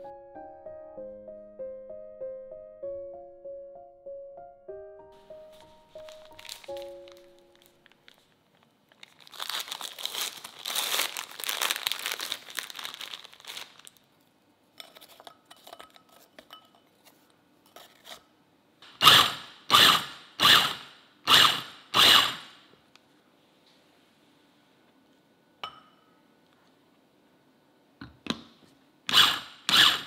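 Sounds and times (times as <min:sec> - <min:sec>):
plastic wrapper crinkling and tearing: 0:05.4 - 0:14.2.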